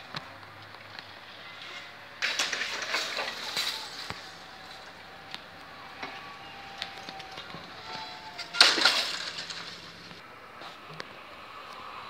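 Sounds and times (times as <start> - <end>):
barrier clicks and clinks: 1.6 - 10.2.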